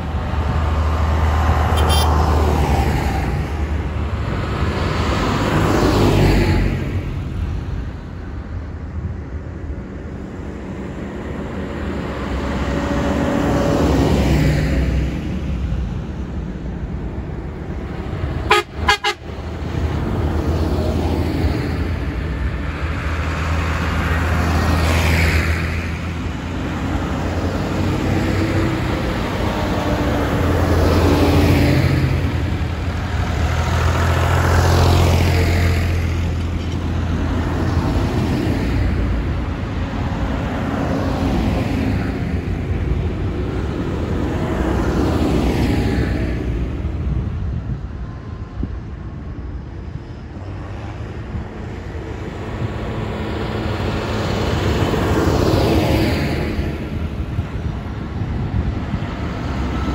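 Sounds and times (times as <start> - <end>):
tractors driving past: 0.0 - 59.9
short horn toots: 1.8 - 2.2, 18.5 - 19.2.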